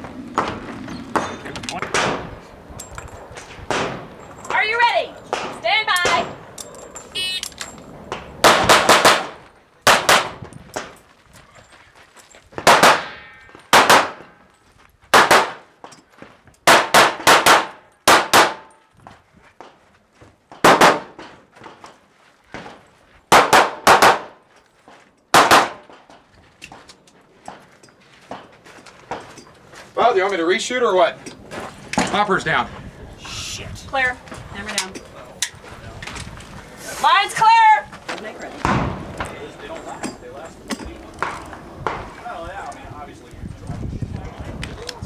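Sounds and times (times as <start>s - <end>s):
handgun shots: 1.8s - 2.3s, 8.4s - 10.9s, 12.6s - 14.3s, 15.2s - 15.6s, 16.6s - 18.8s, 20.6s - 21.2s, 23.3s - 24.4s, 25.3s - 25.9s.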